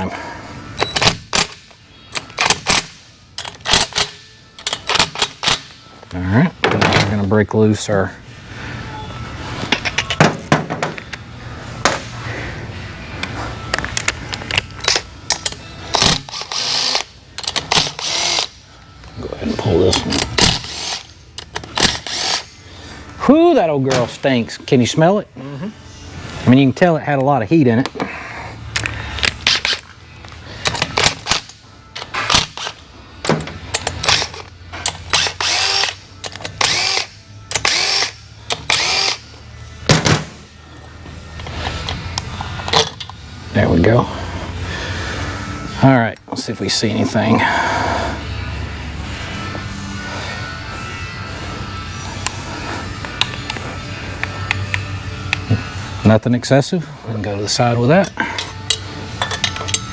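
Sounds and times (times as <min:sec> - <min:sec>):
clicks of tools and parts: 0:00.8 - 0:07.2, 0:09.7 - 0:11.2, 0:13.2 - 0:19.2, 0:19.9 - 0:22.4, 0:28.7 - 0:39.2, 0:41.4 - 0:43.2, 0:53.0 - 0:53.6, 0:54.2 - 0:55.5, 0:58.0 - 0:59.9
metallic clicks of tools: 0:13.2 - 0:19.2, 0:58.0 - 0:59.9
cordless drill bursts: 0:16.0 - 0:17.1, 0:17.8 - 0:18.6, 0:21.9 - 0:22.5, 0:35.1 - 0:36.0, 0:36.6 - 0:39.3.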